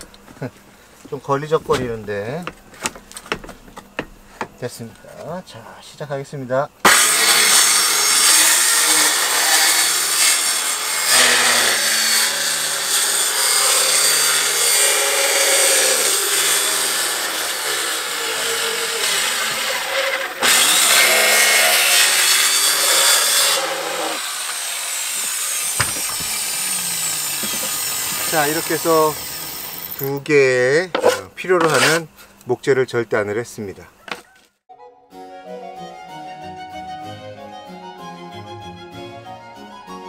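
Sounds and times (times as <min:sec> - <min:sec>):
circular saw cutting plywood: 0:06.8 - 0:30.2, 0:30.9 - 0:32.1.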